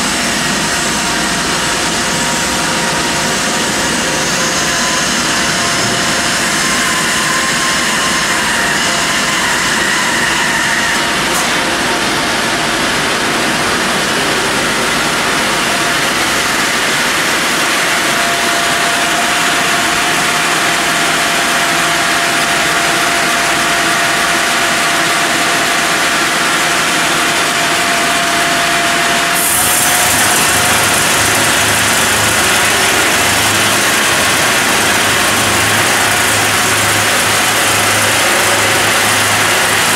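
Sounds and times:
bandsaw sawing through log: 29.4 - 39.9.

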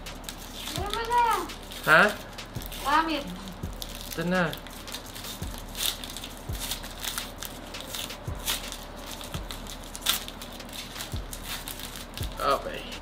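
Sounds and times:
foil pack crinkling: 0.0 - 13.0.

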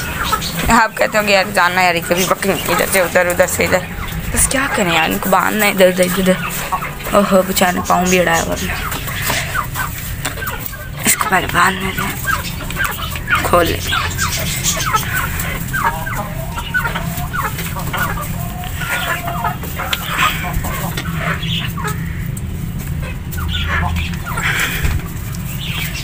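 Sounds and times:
chickens clucking: 0.0 - 26.0
steady low hum: 0.0 - 26.0.

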